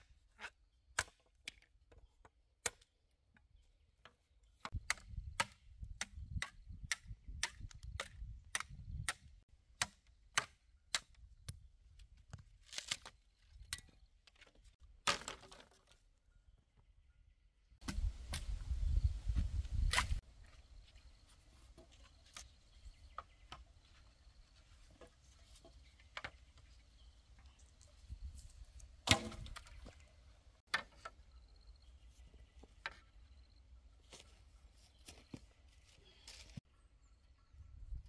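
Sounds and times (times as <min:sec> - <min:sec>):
blade chopping wood: 0:29.0 - 0:29.9.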